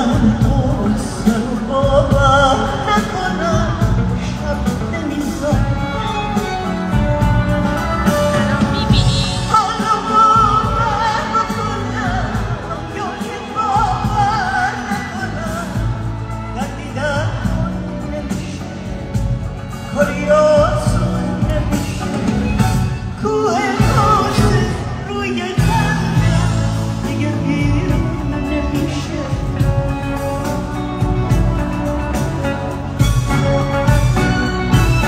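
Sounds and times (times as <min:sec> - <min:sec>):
full band playing: 0:00.0 - 0:35.0
woman singing with vibrato: 0:08.3 - 0:18.6, 0:23.2 - 0:30.0.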